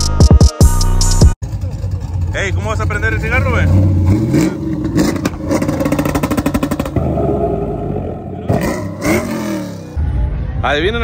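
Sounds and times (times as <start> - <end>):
vehicle engine revving: 1.4 - 10.0.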